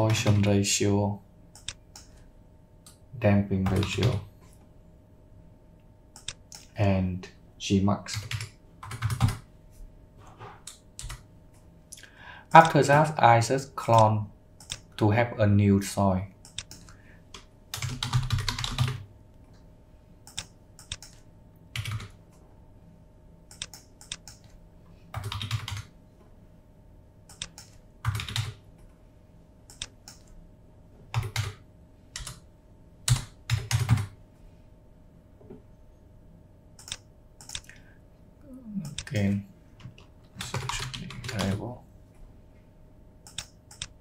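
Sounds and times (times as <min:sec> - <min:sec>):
keyboard typing: 0:01.5 - 0:02.2, 0:03.6 - 0:04.2, 0:06.2 - 0:06.7, 0:08.1 - 0:09.4, 0:10.6 - 0:11.2, 0:13.9 - 0:14.9, 0:16.4 - 0:19.0, 0:20.2 - 0:22.1, 0:23.5 - 0:24.5, 0:25.1 - 0:25.9, 0:27.3 - 0:28.6, 0:29.7 - 0:30.4, 0:31.1 - 0:32.4, 0:33.1 - 0:34.1, 0:36.8 - 0:37.8, 0:38.8 - 0:41.7, 0:43.2 - 0:44.0.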